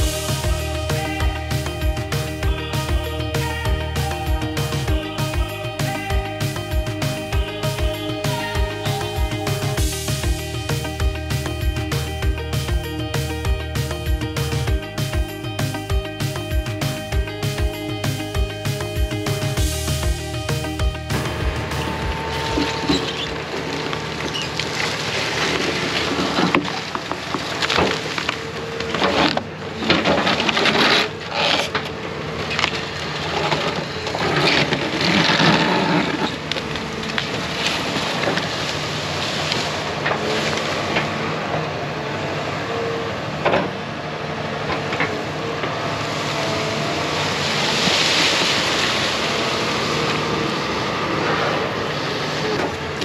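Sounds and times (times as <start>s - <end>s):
heavy machine diesel engine: 0.0s - 53.0s
wood cracking and snapping: 22.4s - 41.1s.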